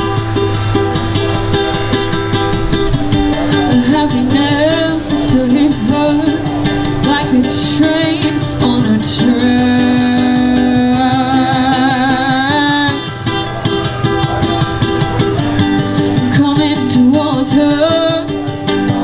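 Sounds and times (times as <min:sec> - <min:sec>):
person singing: 0:03.1 - 0:19.0
rock band playing: 0:12.7 - 0:16.3.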